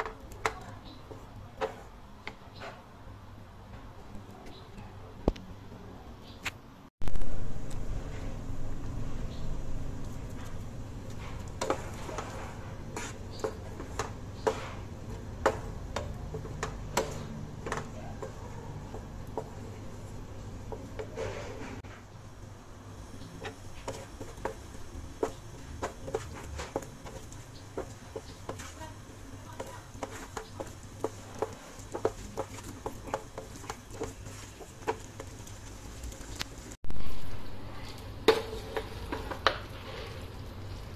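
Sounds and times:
wooden spatula stirring sauce: 0.0 - 2.7, 10.0 - 21.9, 22.9 - 37.1, 37.7 - 40.9
steady low hum: 7.0 - 34.7.

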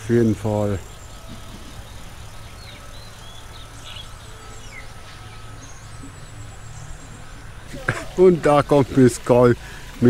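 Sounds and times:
steady low hum: 0.0 - 10.0
bird chirps and calls: 0.8 - 7.6.

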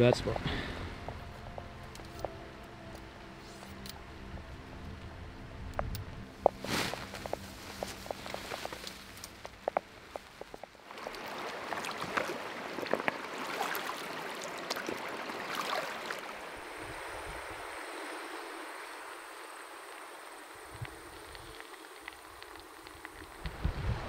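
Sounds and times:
stream running over rocks: 5.7 - 24.0.

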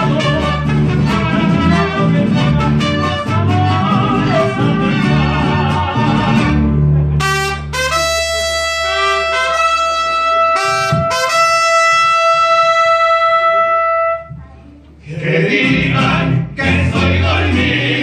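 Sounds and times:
mariachi band playing: 0.0 - 18.0
trumpets holding a high note: 7.2 - 14.3.

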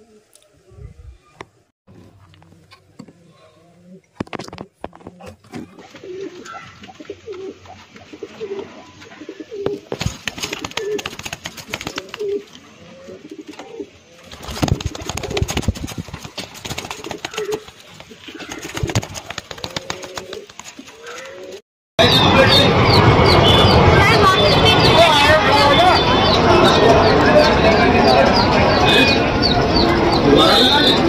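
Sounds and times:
pigeons cooing: 2.4 - 21.6
wing flaps: 9.6 - 12.5, 14.2 - 21.6.

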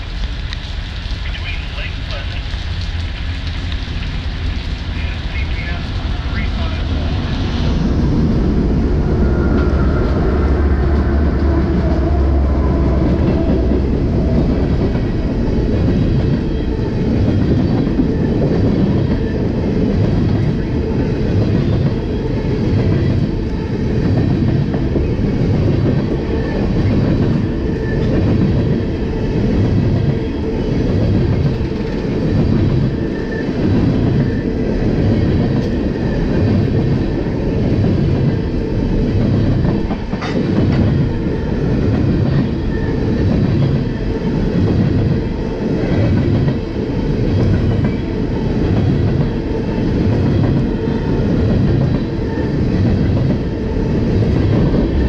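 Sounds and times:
train wheels clicking over rail joints: 39.2 - 41.2.

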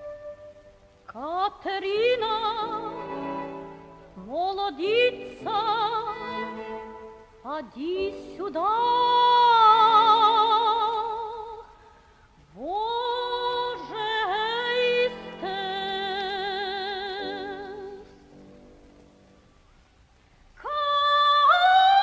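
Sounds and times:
soft sustained accompaniment: 0.0 - 11.8, 12.6 - 20.0
woman singing with vibrato: 1.1 - 11.8, 12.5 - 18.2, 20.6 - 22.0.

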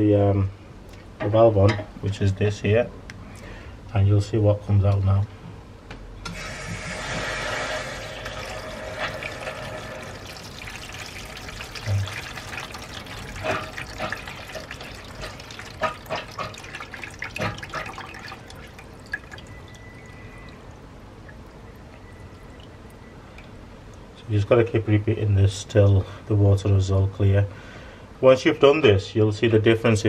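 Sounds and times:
water gushing and splashing: 6.4 - 24.0.

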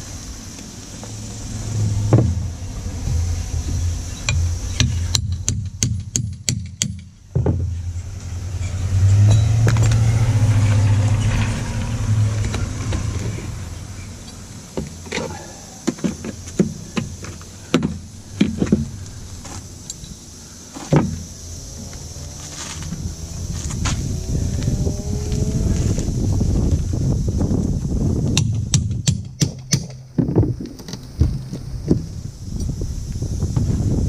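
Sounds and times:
low drone: 0.0 - 5.8, 7.2 - 28.2
metal knocks and clinks: 8.6 - 9.9.

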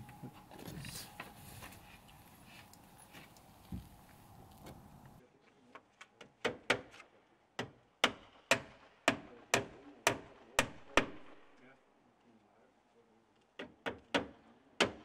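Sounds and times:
hatchet knocking wooden shingles: 6.2 - 11.2, 13.5 - 15.0.

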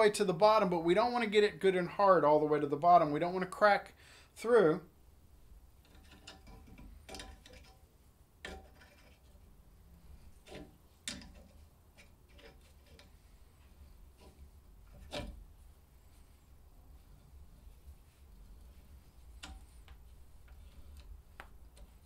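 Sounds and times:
faint metal clicks: 17.8 - 22.0.

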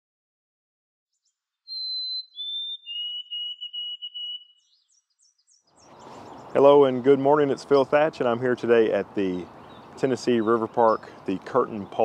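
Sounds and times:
sparrow whistled song: 1.2 - 6.6
faint high bird chips: 1.7 - 6.5.

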